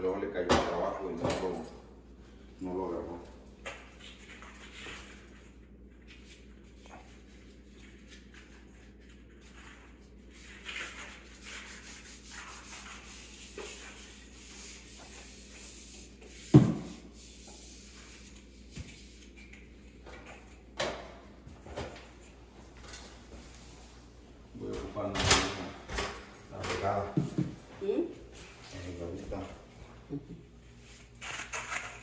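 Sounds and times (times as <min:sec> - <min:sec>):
sanding drywall compound: 0:04.0 - 0:19.7.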